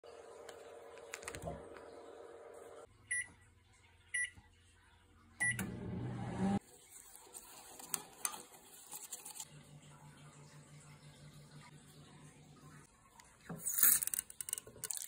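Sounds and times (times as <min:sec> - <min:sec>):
microwave oven humming: 0:00.0 - 0:03.4, 0:05.4 - 0:06.6
microwave keypad beeping: 0:03.1 - 0:03.3, 0:04.2 - 0:04.4, 0:05.4 - 0:05.7.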